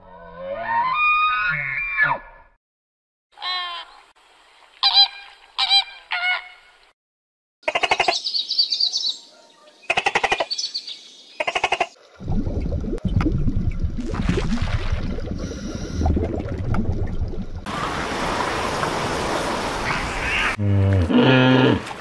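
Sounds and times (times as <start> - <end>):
rushing water: 12.0 - 22.0.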